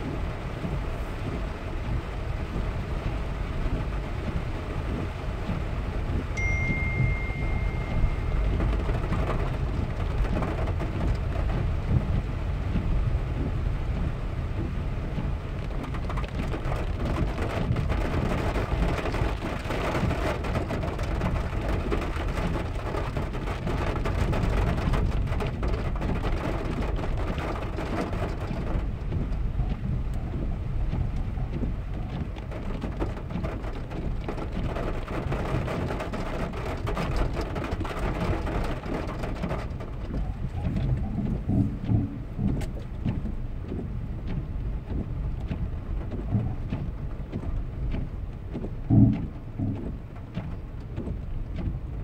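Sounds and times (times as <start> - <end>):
car rolling on rough road: 0.0 - 52.0
rain on car roof: 0.0 - 52.0
steady high beep: 6.4 - 8.6.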